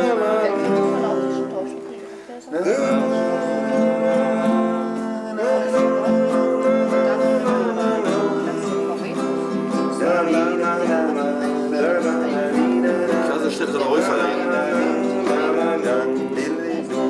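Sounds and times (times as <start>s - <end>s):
man singing long held notes: 0.0s - 1.7s, 2.5s - 17.0s
acoustic guitar: 0.0s - 17.0s.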